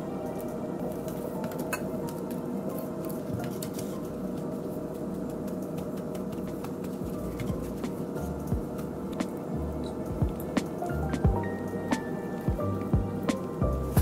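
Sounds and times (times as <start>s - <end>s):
background hum: 0.0s - 14.0s.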